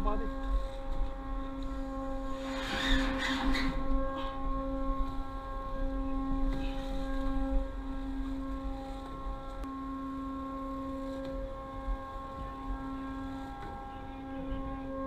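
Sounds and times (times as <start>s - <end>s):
machinery humming: 0.0s - 15.0s
wind rumble on microphone: 0.0s - 15.0s.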